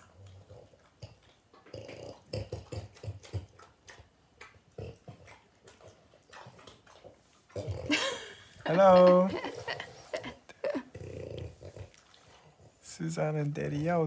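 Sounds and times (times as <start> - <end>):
dogs chewing and smacking: 0.0 - 14.0.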